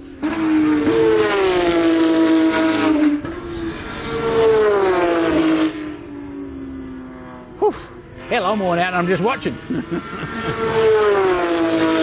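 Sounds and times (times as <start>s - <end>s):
race cars passing at speed: 0.0s - 12.0s.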